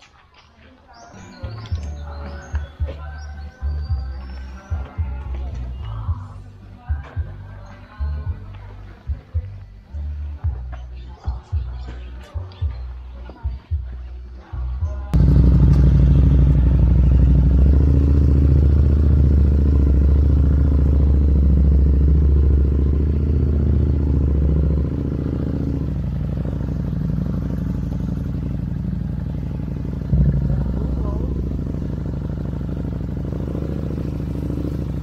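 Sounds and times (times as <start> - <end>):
motorcycle engine drone: 15.1 - 35.0.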